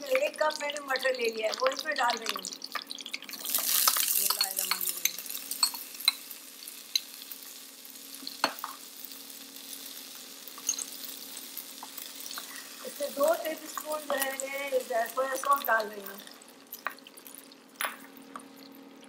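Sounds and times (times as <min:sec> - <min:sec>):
peas sizzling in hot fat: 0:00.0 - 0:19.0
spoon scraping and tapping bowl: 0:03.6 - 0:06.2, 0:10.6 - 0:10.9.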